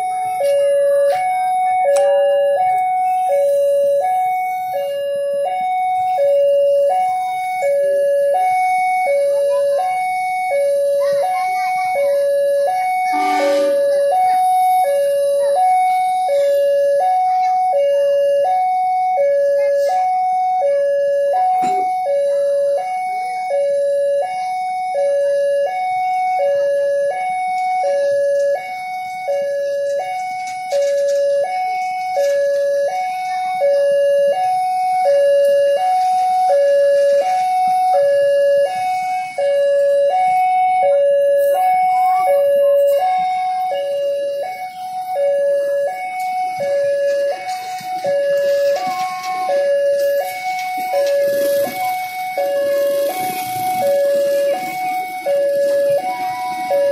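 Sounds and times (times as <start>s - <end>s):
level crossing two-note alarm: 0.0s - 56.9s
train coaches rolling past: 12.7s - 16.2s, 43.1s - 56.9s.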